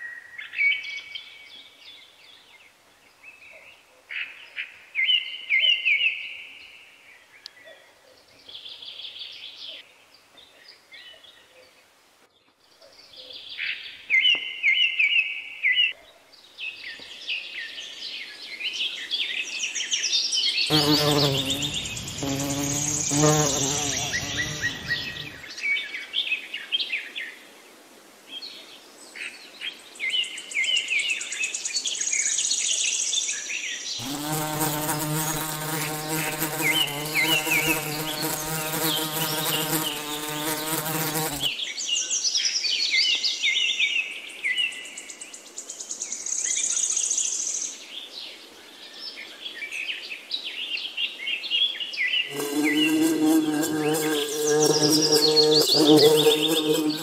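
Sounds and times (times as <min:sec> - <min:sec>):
small birds chirping: 0:20.6 - 0:25.6, 0:34.0 - 0:41.8, 0:52.2 - 0:57.0
bee buzzing: 0:20.7 - 0:25.5, 0:34.0 - 0:41.6, 0:52.3 - 0:57.0.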